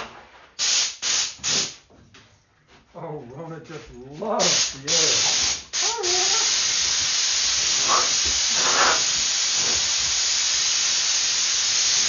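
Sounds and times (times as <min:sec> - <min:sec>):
compressed air blow gun hissing: 0:04.4 - 0:12.0.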